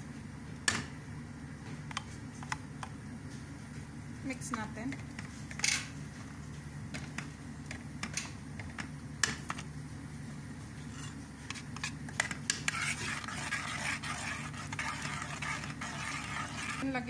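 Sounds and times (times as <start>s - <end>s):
metal spoon stirring in pot: 10.9s - 17.0s.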